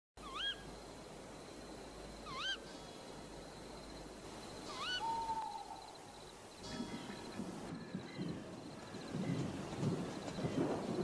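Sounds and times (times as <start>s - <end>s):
short warbling calls: 0.2s - 0.7s, 2.2s - 3.0s, 4.6s - 6.2s
steady low hiss: 0.2s - 11.0s.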